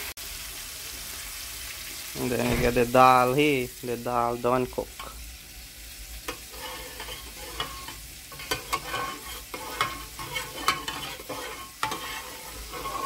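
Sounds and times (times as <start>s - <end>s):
metal spoon scraping a pot: 6.3s - 13.0s.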